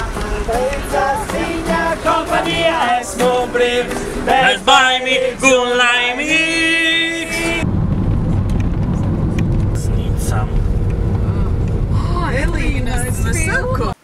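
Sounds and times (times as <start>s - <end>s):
choir singing: 0.0s - 7.6s.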